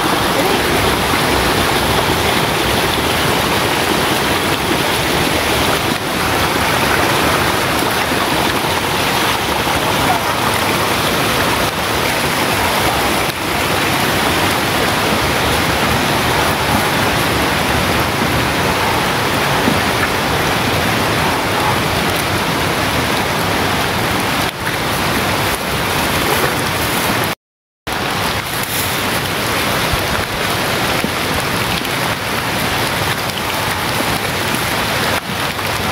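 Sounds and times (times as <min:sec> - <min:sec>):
heavy rain hiss: 0:00.0 - 0:25.5.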